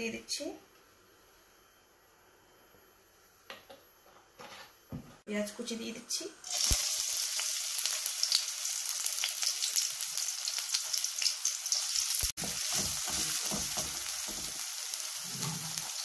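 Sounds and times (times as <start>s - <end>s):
onion sizzling in oil: 6.4s - 16.0s.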